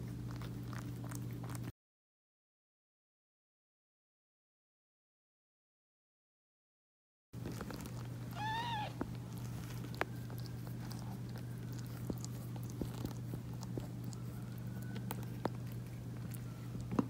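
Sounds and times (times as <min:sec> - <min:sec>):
steady low hum: 0:07.4 - 0:17.0
kitten mewing: 0:08.3 - 0:09.1.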